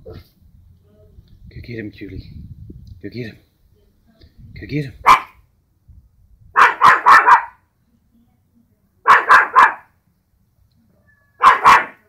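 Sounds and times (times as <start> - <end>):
small dog yapping: 5.1 - 5.4, 6.6 - 7.6, 9.1 - 9.9, 11.1 - 12.0.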